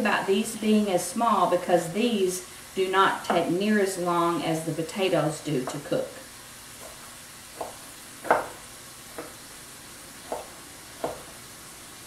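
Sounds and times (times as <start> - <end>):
sausage sizzling in skillet: 0.1 - 12.0
knife knocking on cutting board: 7.6 - 8.6, 10.3 - 11.3.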